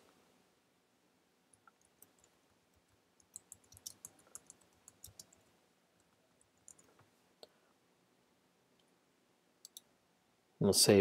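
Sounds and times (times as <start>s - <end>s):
typing on keyboard: 1.5s - 7.0s, 9.6s - 9.9s.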